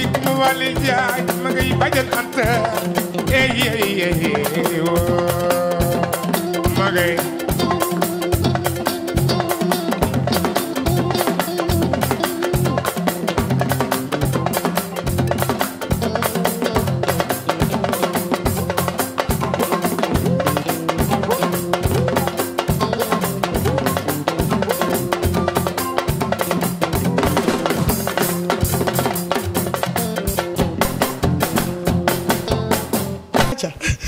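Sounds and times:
sabar drumming: 0.0 - 33.7
drum kit: 0.0 - 34.0
electric bass: 5.0 - 33.6.

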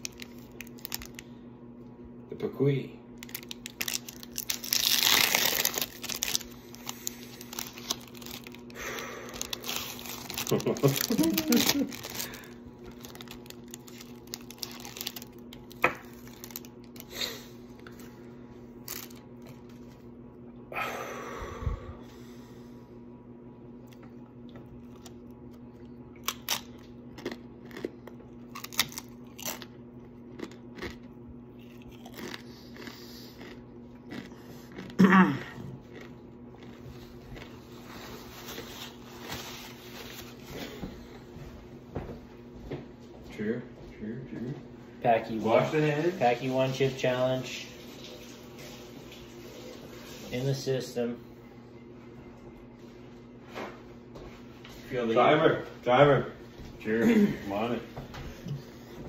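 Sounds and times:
foil pouch ripping: 0.0 - 1.2, 3.2 - 17.4, 18.8 - 19.2, 28.5 - 29.7
tortilla chip crunching: 0.0 - 1.3, 3.2 - 18.1, 18.8 - 19.9, 23.8 - 40.4
foil wrapper crinkling: 0.0 - 1.4, 3.2 - 18.1, 18.8 - 19.8, 37.8 - 40.7.

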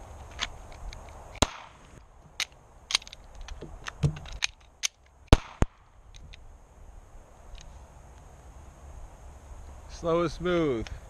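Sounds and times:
pistol slide and magazine clicks: 2.4 - 6.3.

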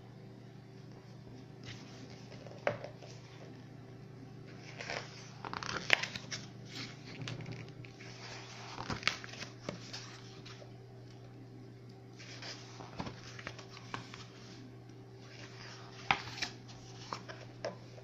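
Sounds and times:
book pages turning: 1.6 - 3.5, 4.5 - 10.7, 12.2 - 18.0.

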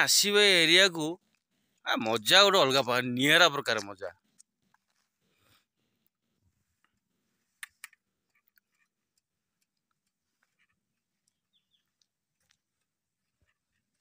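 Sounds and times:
faint clicks: 6.8 - 14.0.

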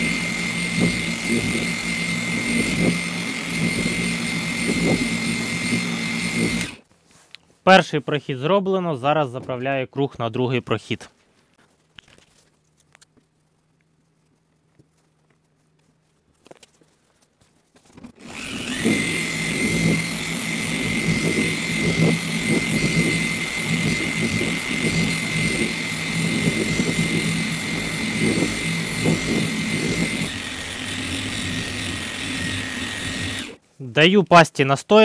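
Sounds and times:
electric polisher motor whine: 0.0 - 6.8, 18.2 - 33.6.

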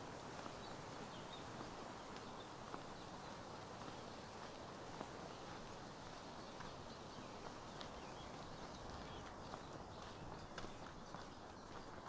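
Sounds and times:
footsteps on a path: 0.0 - 12.0
steady outdoor hiss: 0.0 - 12.0.

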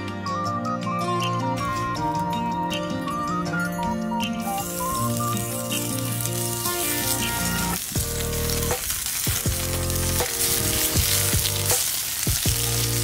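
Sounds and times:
background music with bass line: 0.0 - 13.0
meat sizzling in frying pan: 4.4 - 13.0.

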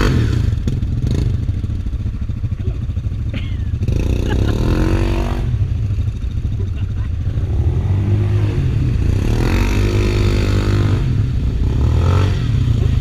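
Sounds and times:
atv engine revving: 0.0 - 13.0.

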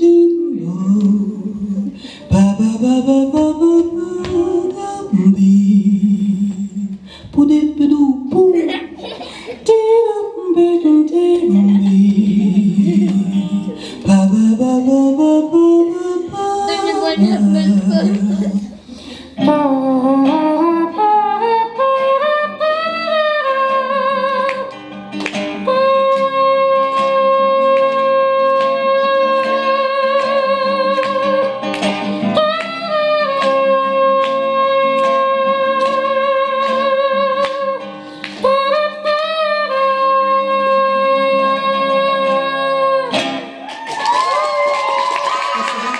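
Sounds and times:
woman singing: 0.0 - 24.8, 25.6 - 31.6, 32.2 - 43.4
acoustic guitar strumming: 10.0 - 43.7.

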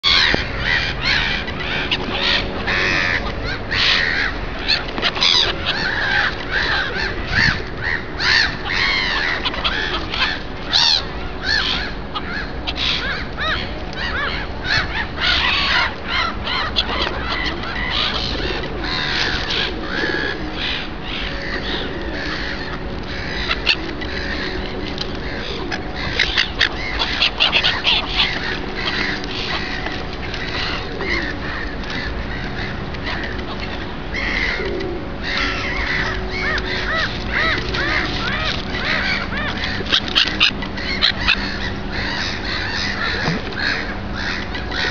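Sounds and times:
gulls calling: 0.0 - 44.9.

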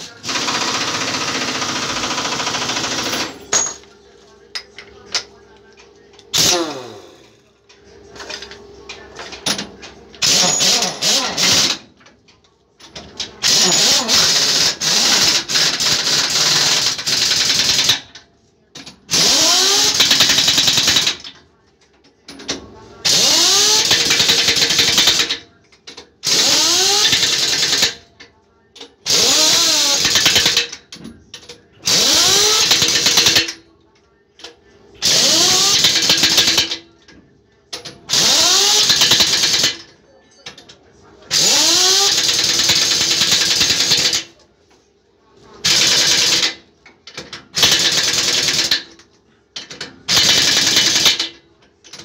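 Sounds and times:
pneumatic impact wrench hammering: 6.4 - 7.2, 9.5 - 11.9, 13.4 - 18.2, 19.1 - 21.3, 23.0 - 28.0, 29.0 - 31.1, 31.8 - 33.6, 35.0 - 36.8, 37.8 - 39.9, 41.3 - 44.3, 45.6 - 49.0, 49.6 - 52.0.

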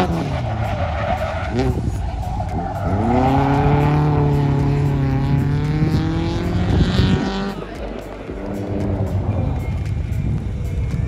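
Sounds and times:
car engine accelerating hard: 0.0 - 9.8.

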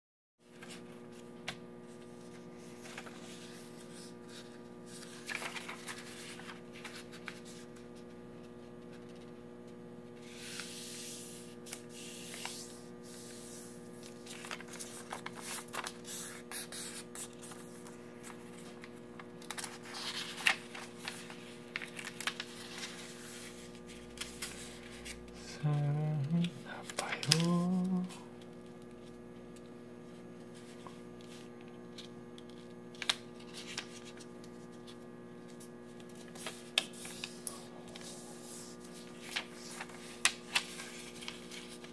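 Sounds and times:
paper rustling and creasing: 0.4 - 9.4, 10.2 - 41.9
steady electrical hum: 0.4 - 41.9
paper clicking on table: 39.2 - 41.9.

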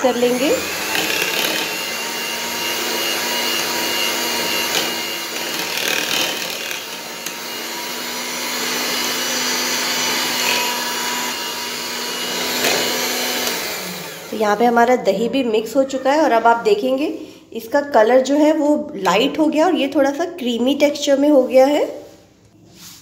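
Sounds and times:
hand mixer whisking batter: 0.0 - 15.1.

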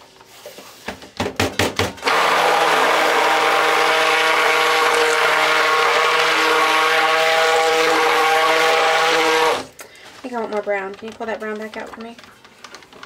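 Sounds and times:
stick blender running: 2.0 - 9.8.

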